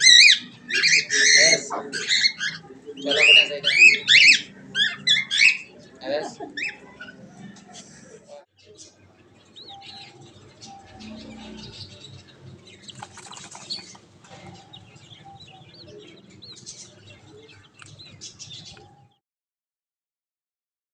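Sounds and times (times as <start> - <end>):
chicks peeping: 0.0 - 19.2.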